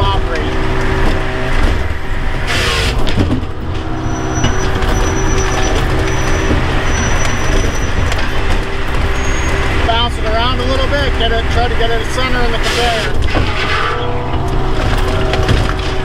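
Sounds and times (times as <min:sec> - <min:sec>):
engine and hydraulics running: 0:00.0 - 0:16.0.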